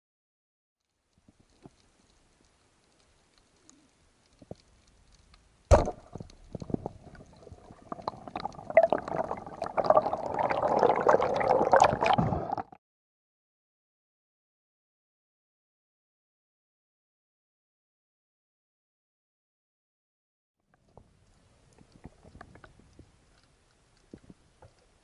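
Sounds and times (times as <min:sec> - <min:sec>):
underwater clicks and crackles: 0:00.8 - 0:12.8, 0:20.7 - 0:25.0
underwater water wash: 0:01.5 - 0:12.8
sharp underwater knock: 0:05.7 - 0:06.2.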